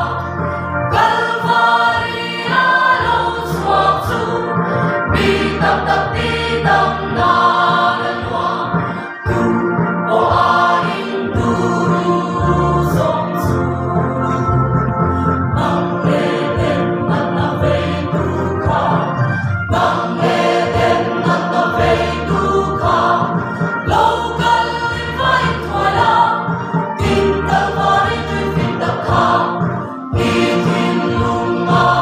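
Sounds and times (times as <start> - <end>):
choir singing a hymn: 0.0 - 32.0.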